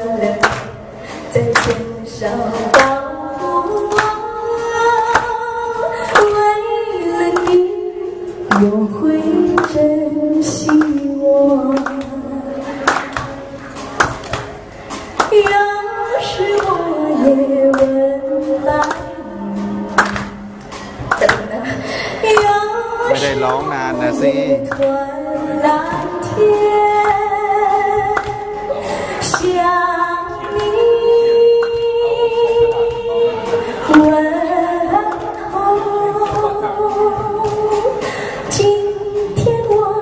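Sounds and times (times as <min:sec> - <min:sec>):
woman singing: 0:00.0 - 0:13.5, 0:15.2 - 0:40.0
backing music with a beat: 0:00.0 - 0:40.0.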